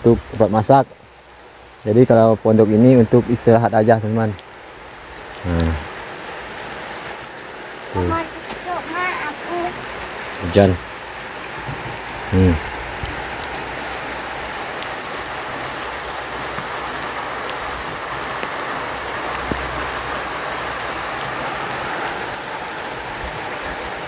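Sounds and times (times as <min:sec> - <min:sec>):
steady rain falling: 0:00.0 - 0:24.0
brief voice: 0:08.0 - 0:09.8.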